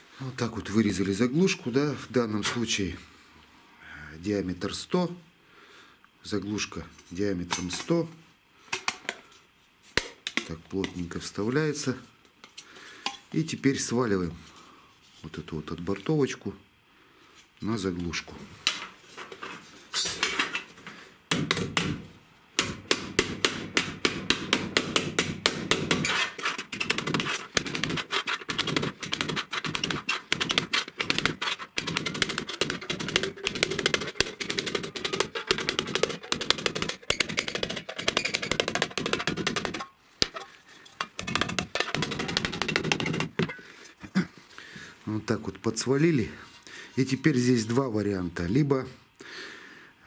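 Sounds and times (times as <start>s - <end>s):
hammer tapping on sheet metal: 22.6s - 26.1s, 26.8s - 40.4s, 41.0s - 43.6s.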